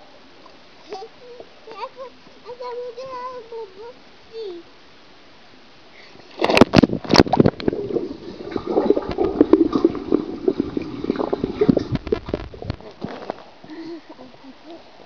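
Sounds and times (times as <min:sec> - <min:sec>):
gurgling water underwater: 0:06.3 - 0:13.6.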